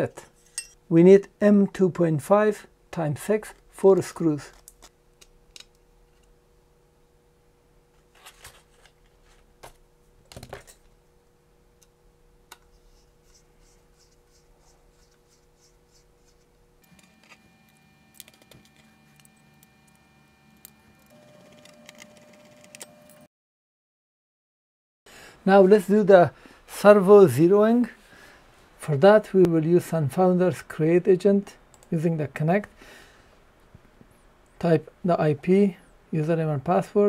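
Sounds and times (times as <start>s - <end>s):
faint hum with held tones: 0.0s - 23.3s.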